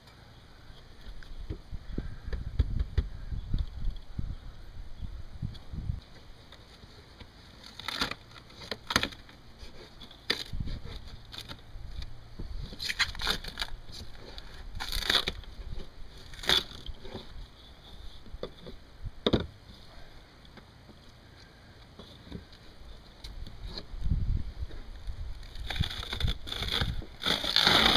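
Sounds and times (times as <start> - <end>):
plywood cracking and tearing: 7.5 - 17.5, 25.0 - 27.9.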